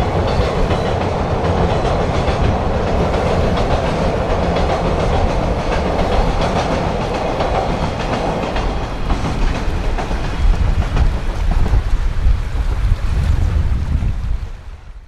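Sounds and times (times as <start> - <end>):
train wheels clattering on rails: 0.0 - 13.0
wind buffeting microphone: 0.0 - 15.0.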